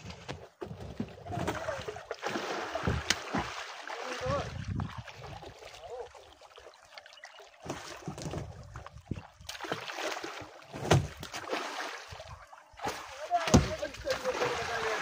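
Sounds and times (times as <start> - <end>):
water splashing and dripping: 0.1 - 15.0
net knocking against a boat: 10.7 - 11.5, 13.3 - 14.3.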